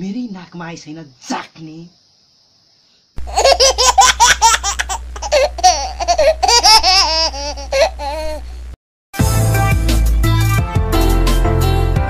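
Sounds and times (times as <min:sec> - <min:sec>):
high-pitched laughter: 0:03.2 - 0:08.4.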